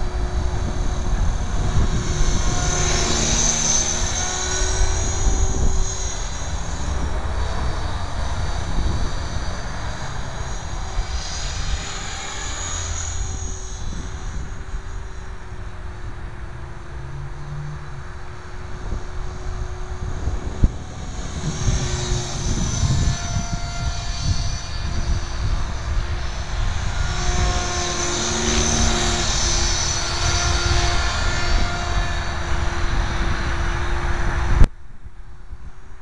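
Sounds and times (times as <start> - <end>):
model helicopter whine: 0.0 - 34.7
wind rumbling on microphone: 0.0 - 36.0.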